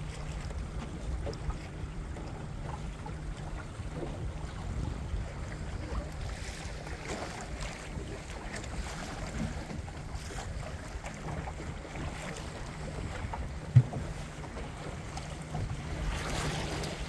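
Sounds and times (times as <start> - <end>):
water lapping along boat hull: 0.0 - 17.0
wind buffeting microphone: 0.0 - 17.0.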